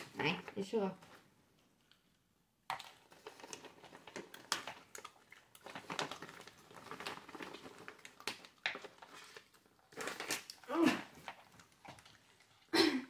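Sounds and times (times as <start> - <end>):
dogs crunching treats: 2.7 - 12.8
paper bag crinkling: 3.0 - 12.2.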